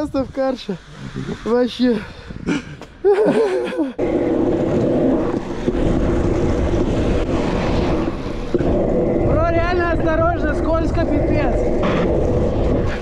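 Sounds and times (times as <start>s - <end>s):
wind buffeting microphone: 0.0s - 13.0s
scooter wheels rolling on wet asphalt: 4.0s - 13.0s.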